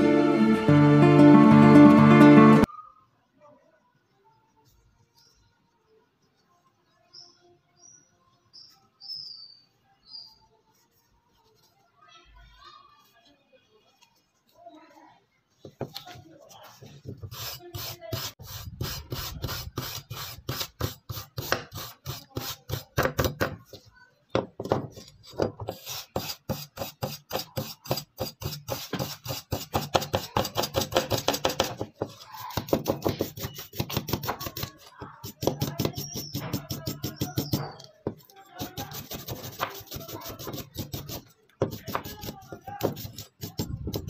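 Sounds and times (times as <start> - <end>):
hand file scraping metal: 17.2 - 22.9, 24.9 - 44.0.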